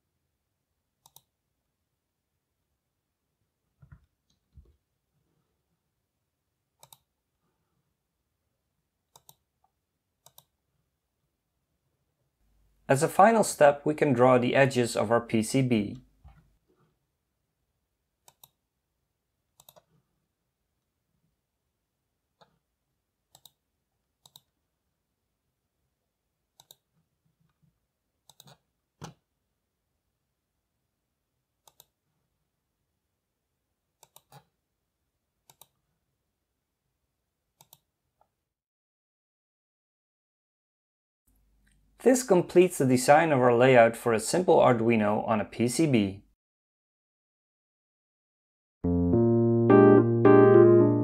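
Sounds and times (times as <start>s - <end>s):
computer mouse clicks: 1.0s - 1.3s, 6.8s - 7.1s, 9.1s - 10.6s, 18.2s - 18.6s, 19.6s - 20.0s, 23.3s - 23.6s, 24.2s - 24.6s, 26.6s - 27.6s, 28.2s - 29.2s, 31.6s - 32.0s, 34.0s - 34.6s, 35.4s - 35.8s, 37.6s - 38.3s.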